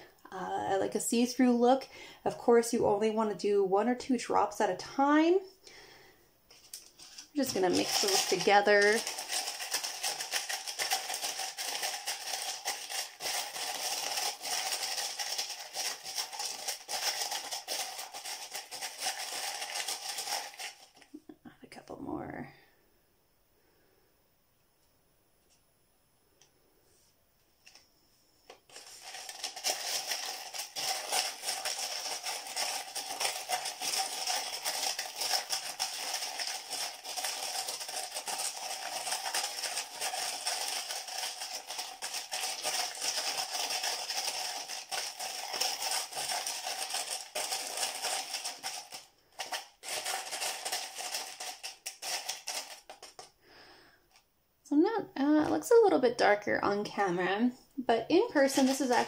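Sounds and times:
glass pieces rattling in a cup: 7.4s - 20.7s, 28.8s - 53.3s.

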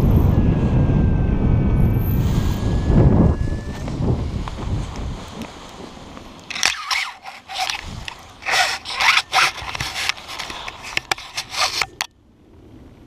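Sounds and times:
wind noise: 0.0s - 12.1s
fabric scraping over dry grass: 6.5s - 12.1s.

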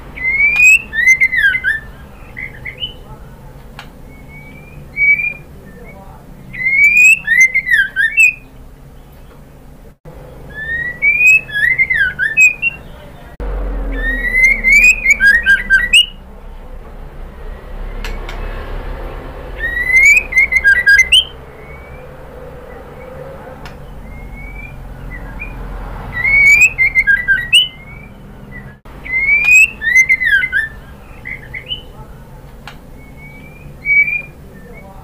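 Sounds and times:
bird singing whistled phrases: 0.2s - 3.1s, 4.0s - 9.3s, 10.4s - 13.1s, 13.9s - 16.2s, 19.6s - 22.1s, 22.7s - 32.0s, 33.0s - 35.0s
low hum: 8.4s - 27.0s.

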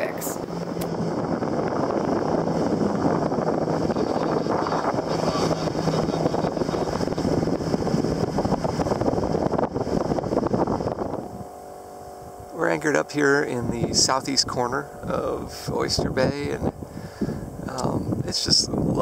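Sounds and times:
water moving past hull: 0.0s - 13.6s
boat engine running: 0.0s - 19.0s
wind noise on microphone: 0.0s - 19.0s.

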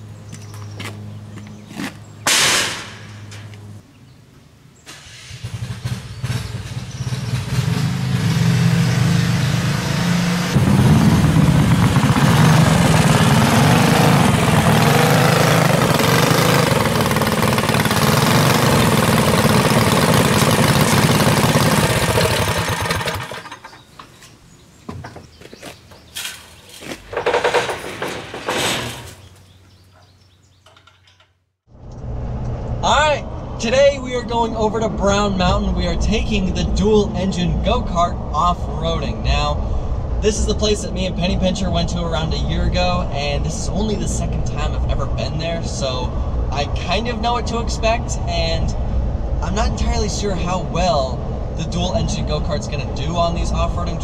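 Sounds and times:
metal clanks of ramp gate: 2.3s - 3.5s, 26.0s - 29.6s, 30.6s - 31.4s
go-kart engines running: 10.6s - 24.0s.

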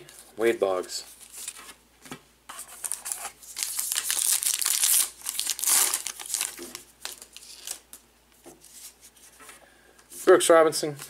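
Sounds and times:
card pack wrapper crinkling: 2.6s - 8.0s.

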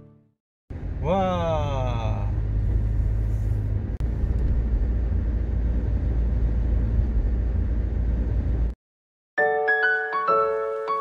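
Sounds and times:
car interior engine and road rumble: 0.7s - 8.8s.

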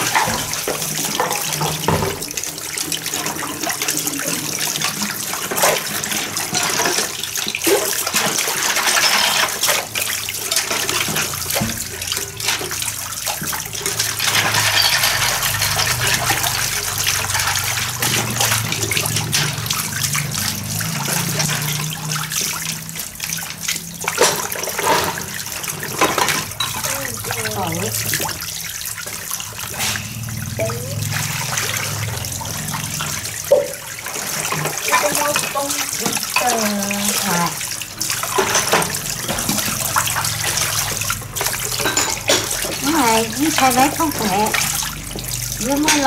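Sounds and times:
dishes clinking and knocking: 0.0s - 2.4s, 8.2s - 9.9s, 13.4s - 16.7s, 24.1s - 27.2s, 33.5s - 33.8s, 38.3s - 40.3s, 41.4s - 43.0s
water running from hose into basin: 0.0s - 46.0s
water splashing: 0.0s - 46.0s.

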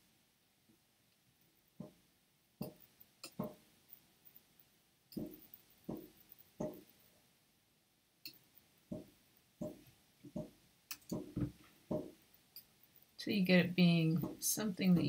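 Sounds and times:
computer mouse clicking: 10.9s - 11.3s.

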